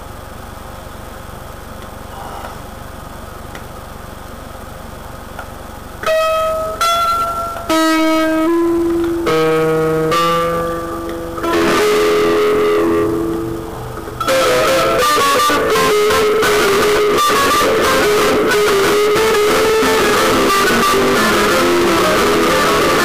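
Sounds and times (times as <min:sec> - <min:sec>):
low hiss: 0:00.0 - 0:23.0
guitar chord strummed: 0:06.0 - 0:23.0
guitar plucked notes: 0:06.0 - 0:23.0.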